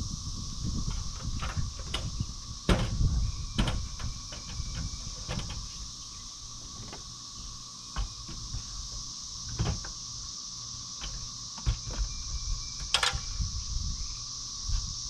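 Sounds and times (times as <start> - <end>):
insect drone: 0.0 - 15.0
wooden knocks and clunks: 0.9 - 5.7, 7.9 - 8.7, 9.5 - 10.0, 11.0 - 12.2.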